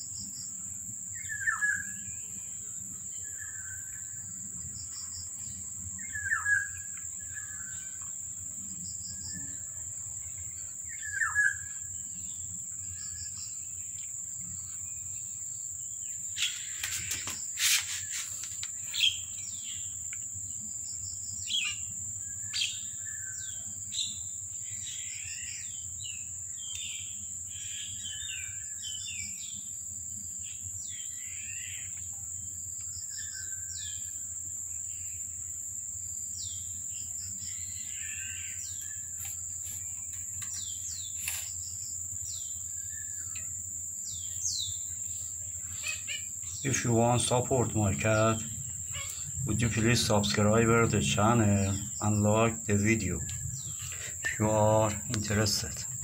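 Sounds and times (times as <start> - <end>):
high-pitched insect drone: 0.0 - 56.0
small birds chirping: 0.0 - 56.0.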